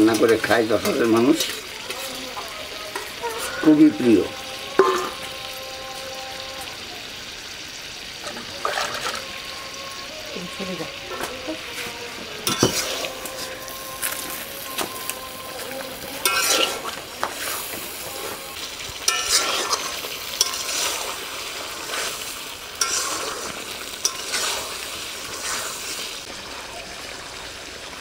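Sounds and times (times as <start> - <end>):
spatula scraping metal pot: 0.0 - 6.7, 8.2 - 9.5, 10.7 - 26.0
meat sizzling in oil: 0.0 - 28.0.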